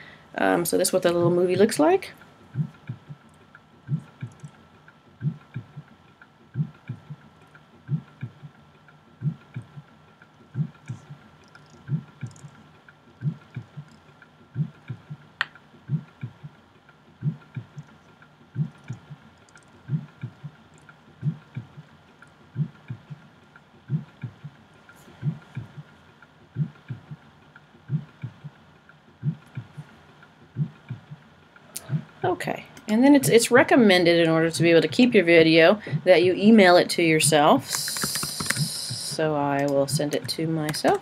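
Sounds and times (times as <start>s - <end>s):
looping drum beat: 0.6s - 32.4s, 33.0s - 41.0s
sharp click: 37.7s - 41.0s.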